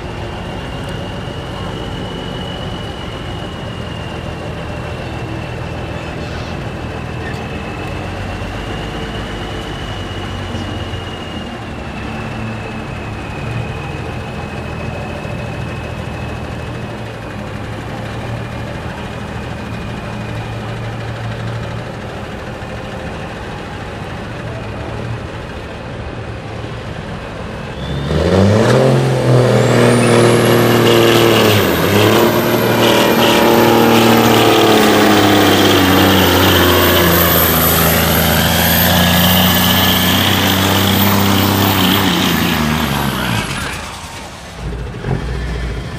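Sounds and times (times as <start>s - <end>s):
high whistle climbing in pitch: 0.0s - 18.4s, 27.6s - 43.9s
diesel truck engine idling and revving: 0.0s - 45.9s.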